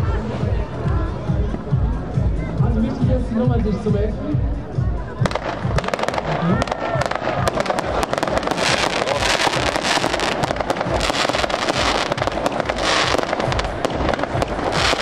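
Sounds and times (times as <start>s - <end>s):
fireworks bangs: 5.2s - 15.0s
fireworks crackling: 5.2s - 15.0s.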